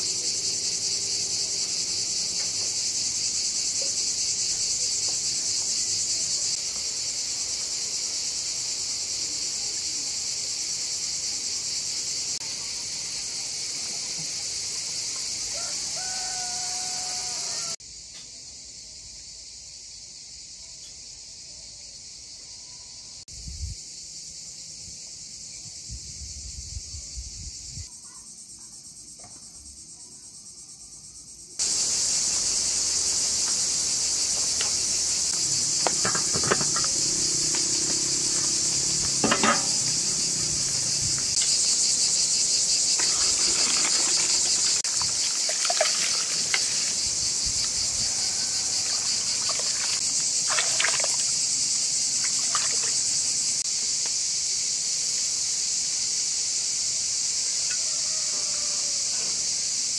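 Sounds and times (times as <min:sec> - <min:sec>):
insects chirring: 0:00.0 - 0:59.9
metal pot and lid clinking: 0:35.8 - 0:37.1, 0:39.2 - 0:39.9.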